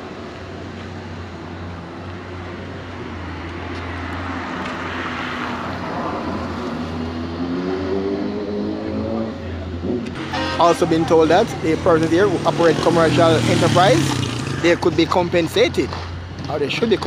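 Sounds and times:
vehicle engine revving: 0:06.4 - 0:17.0.

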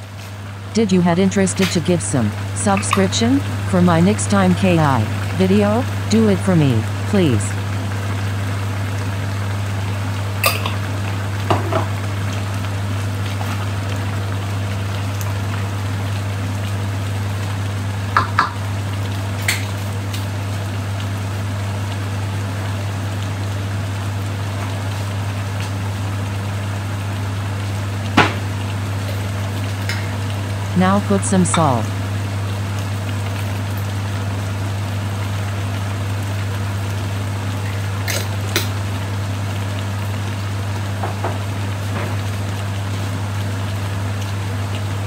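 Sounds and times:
steady low hum: 0:00.0 - 0:45.0
stew simmering and bubbling: 0:00.0 - 0:45.0
wooden spatula knocking on pan: 0:11.5 - 0:11.9, 0:18.2 - 0:18.6.

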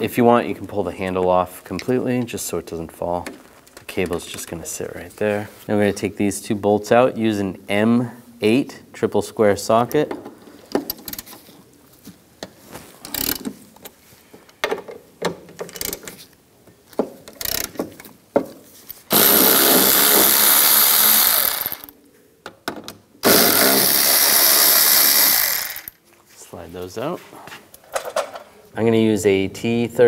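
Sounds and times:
ratchet clicks: 0:13.1 - 0:13.5, 0:15.7 - 0:16.1, 0:17.3 - 0:17.8, 0:19.1 - 0:21.9, 0:23.2 - 0:26.0
rapid ratcheting: 0:17.4 - 0:17.8, 0:19.1 - 0:21.9, 0:23.2 - 0:26.0.

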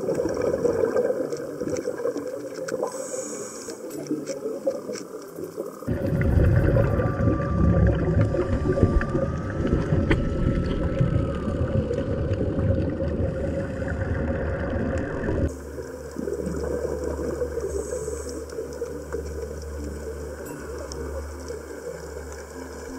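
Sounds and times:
regulator bubbles: 0:00.0 - 0:03.0, 0:04.4 - 0:22.9
steady low hum: 0:05.9 - 0:22.9
underwater rumbling wash: 0:05.9 - 0:22.9
faint thin steady tone: 0:15.5 - 0:22.9.

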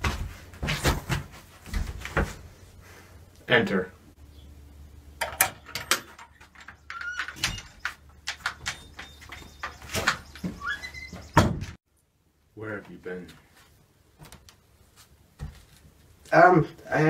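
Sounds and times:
footsteps on wooden boards: 0:00.0 - 0:02.5
door knob and latch rattling: 0:05.2 - 0:09.1
door hinges squeaking: 0:05.3 - 0:11.8.

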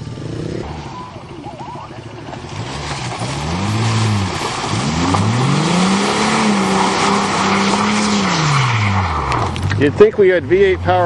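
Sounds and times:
car engine revving: 0:00.0 - 0:11.0
tyres spinning in mud: 0:00.6 - 0:10.3.

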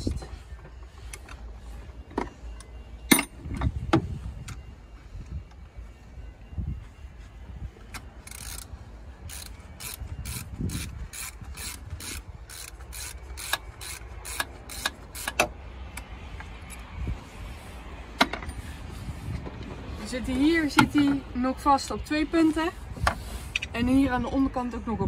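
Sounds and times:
hand ratchet clicking: 0:08.2 - 0:08.7, 0:09.3 - 0:16.8.

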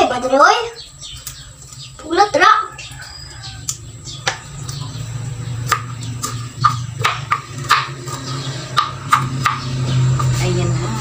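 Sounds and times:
knife chopping on cutting board: 0:05.7 - 0:10.4.

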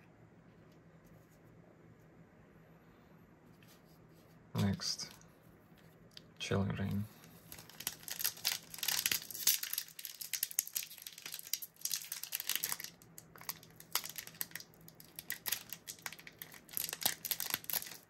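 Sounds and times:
foil wrapper crinkling: 0:07.4 - 0:18.0.

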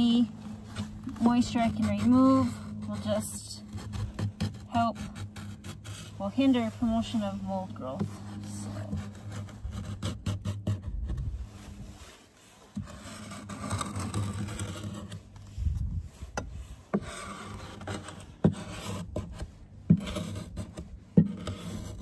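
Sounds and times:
metal tool scraping wood: 0:00.0 - 0:22.0.

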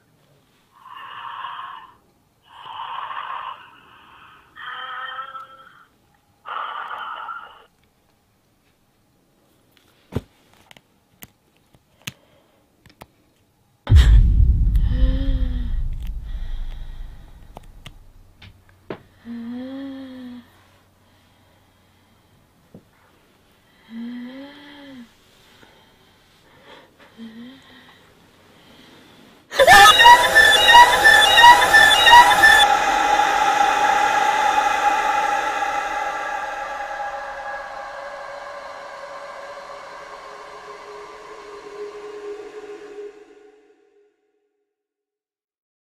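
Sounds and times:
deep boom impact: 0:13.9 - 0:18.2
horror jump-scare sting: 0:13.9 - 0:18.3, 0:29.6 - 0:44.4
steady held tone: 0:13.9 - 0:18.3, 0:29.6 - 0:44.4
low hum: 0:13.9 - 0:18.4, 0:29.6 - 0:44.3
short shrill repeated notes: 0:29.6 - 0:44.0.

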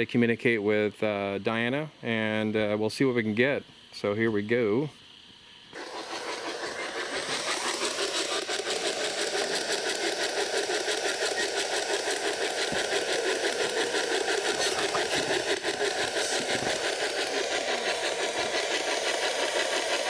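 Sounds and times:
choppy radio static: 0:12.5 - 0:19.4.

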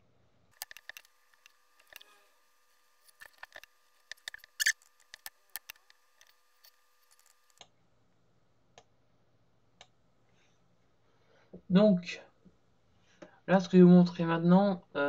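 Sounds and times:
mouse and keyboard clicks: 0:00.6 - 0:02.1, 0:03.1 - 0:07.7.

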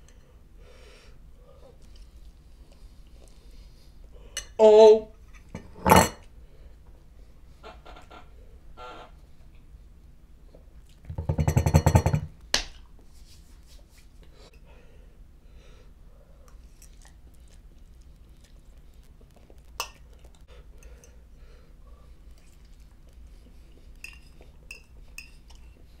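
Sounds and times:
faint eating noises: 0:01.4 - 0:04.6, 0:09.2 - 0:11.1, 0:16.1 - 0:26.0.

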